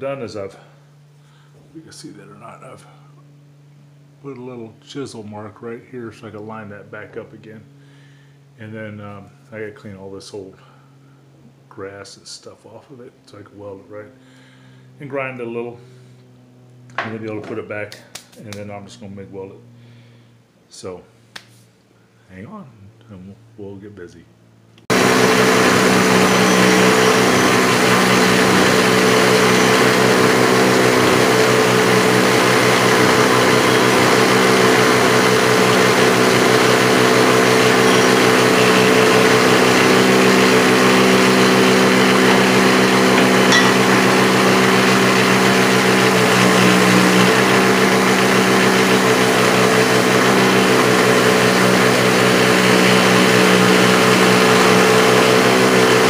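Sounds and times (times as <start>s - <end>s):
bench grinder motor hum: 24.8s - 56.0s.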